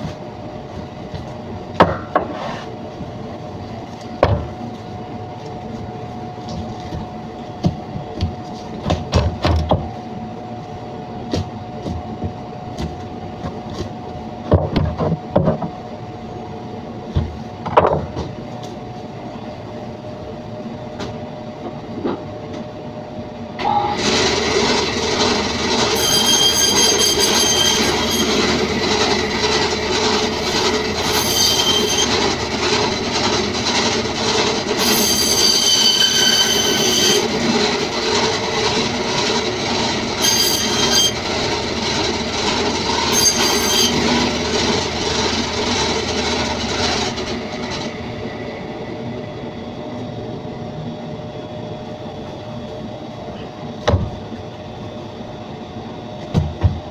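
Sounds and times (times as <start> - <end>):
band saw humming: 23.7 - 47.9
high blade squeal: 25.9 - 28.4, 31.0 - 32.2, 34.8 - 37.3, 40.2 - 41.2, 43.1 - 44.0.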